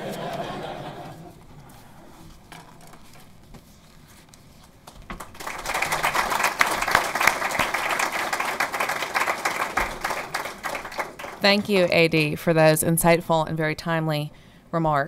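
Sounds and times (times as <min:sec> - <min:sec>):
audience applauding: 0:05.1 - 0:11.9.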